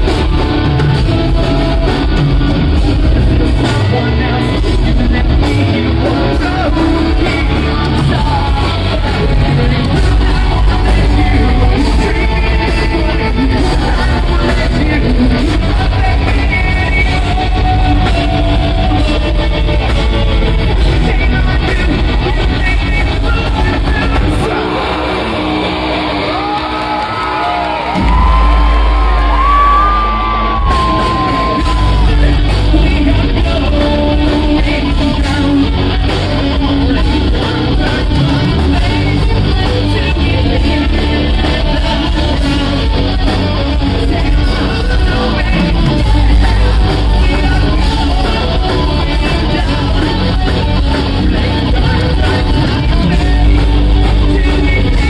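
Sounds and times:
live rock band playing: 0:00.0 - 0:55.0
sung and yelled vocals: 0:00.0 - 0:55.0.

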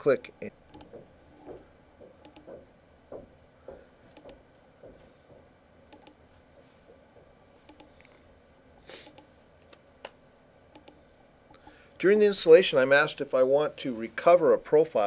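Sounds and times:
computer mouse clicks: 0:00.7 - 0:01.6, 0:02.2 - 0:02.6, 0:04.1 - 0:04.4, 0:05.9 - 0:06.2, 0:07.6 - 0:08.2, 0:09.0 - 0:11.7.

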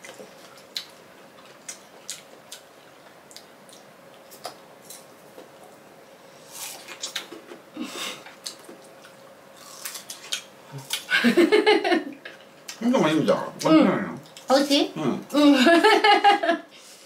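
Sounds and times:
chewing noise: 0:00.0 - 0:05.8.

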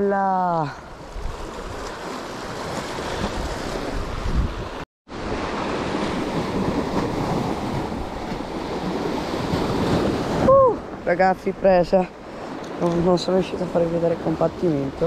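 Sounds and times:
sea waves washing on shore: 0:00.3 - 0:15.0
wind buffeting microphone: 0:01.0 - 0:15.0.

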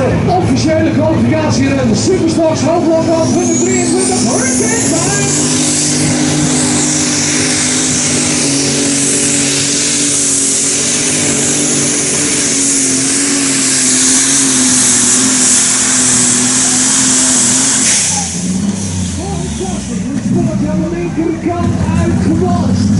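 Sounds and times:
tractor diesel engine running flat out: 0:00.0 - 0:22.9
loud high hiss: 0:02.7 - 0:20.2.

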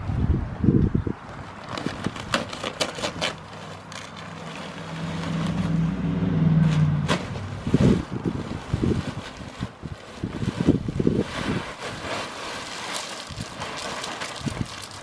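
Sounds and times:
plastic bags crinkling: 0:01.4 - 0:05.9, 0:07.0 - 0:15.0
vehicle engine drone: 0:03.7 - 0:09.2.

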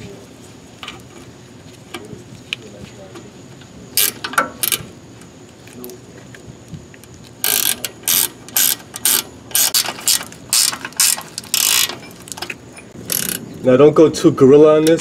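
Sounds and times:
ratchet wrench clicking: 0:04.0 - 0:04.8, 0:07.4 - 0:13.4.

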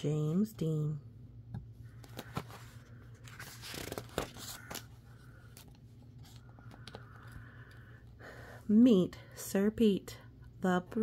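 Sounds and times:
light clicks handling book: 0:01.6 - 0:07.8
book page turning: 0:01.9 - 0:07.4.

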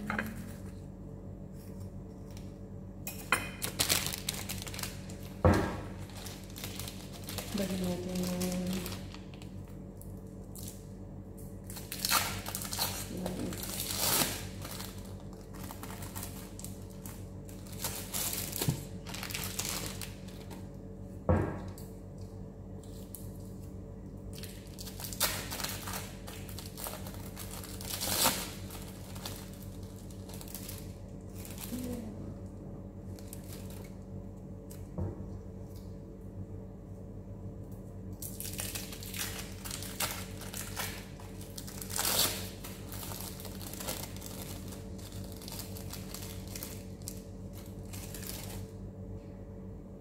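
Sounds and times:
steady low hum: 0:00.0 - 0:50.0
plastic wrappers crinkling: 0:03.5 - 0:20.8, 0:24.3 - 0:32.2, 0:33.0 - 0:34.9, 0:38.2 - 0:48.9.

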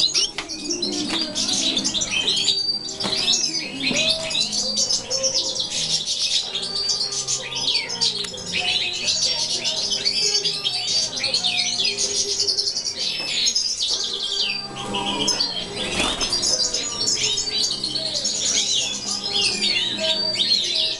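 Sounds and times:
finches singing and twittering: 0:00.0 - 0:20.9.

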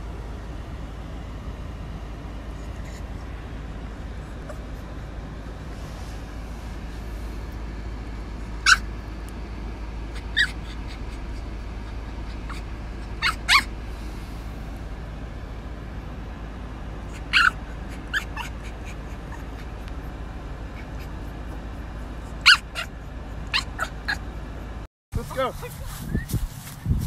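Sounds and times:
low background hum: 0:00.0 - 0:27.0
puppy whimpering: 0:04.3 - 0:04.9, 0:08.6 - 0:08.8, 0:10.1 - 0:13.7, 0:17.1 - 0:24.7.

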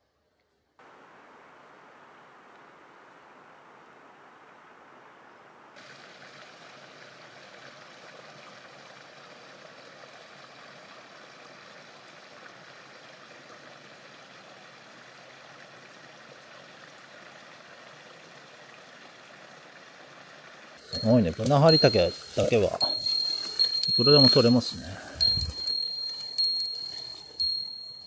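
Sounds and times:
running water: 0:00.8 - 0:28.0.

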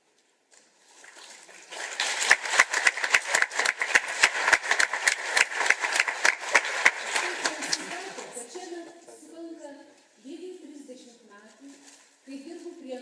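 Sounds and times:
audience applause: 0:01.6 - 0:08.6.

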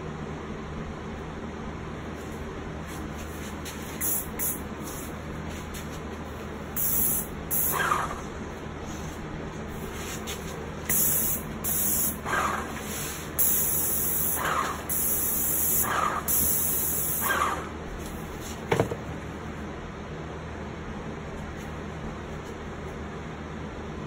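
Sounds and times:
paint spray gun hissing: 0:03.9 - 0:05.1, 0:06.8 - 0:08.2, 0:10.9 - 0:17.6.

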